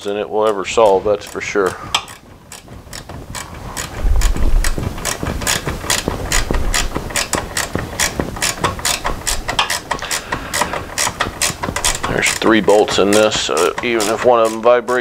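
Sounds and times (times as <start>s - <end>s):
ratchet wrench clicking: 0.0s - 15.0s
low handling bump: 3.2s - 12.6s.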